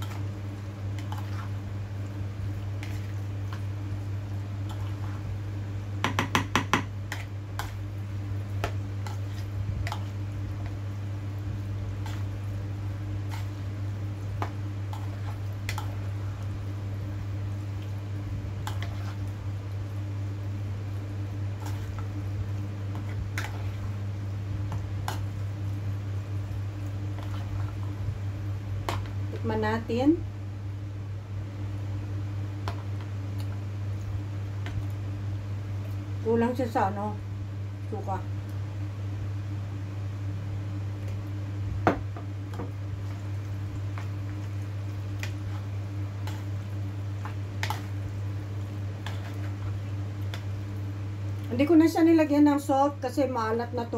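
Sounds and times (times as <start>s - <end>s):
spoon stirring wet salad: 0.0s - 16.6s, 18.6s - 19.9s, 20.9s - 24.0s, 42.3s - 51.5s
steady low hum: 0.0s - 53.9s
spoon stirring in plastic bowl: 48.8s - 50.5s.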